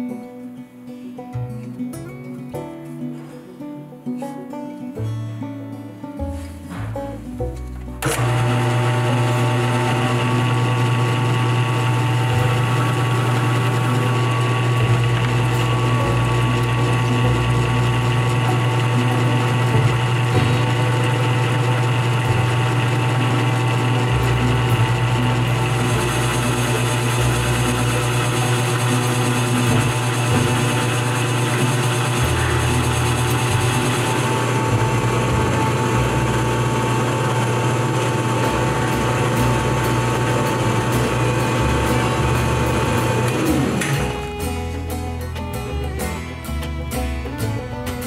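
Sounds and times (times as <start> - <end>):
drill press motor humming: 8.0 - 44.5.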